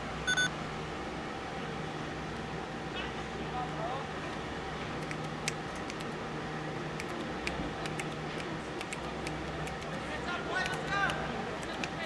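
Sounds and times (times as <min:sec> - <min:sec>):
low background hum: 0:00.0 - 0:12.0
sharp clicks and taps: 0:05.0 - 0:06.2, 0:07.0 - 0:10.0, 0:10.6 - 0:12.0.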